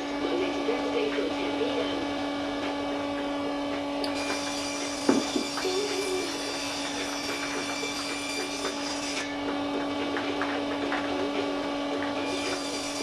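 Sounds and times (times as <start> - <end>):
table saw ripping plywood: 4.2 - 9.4.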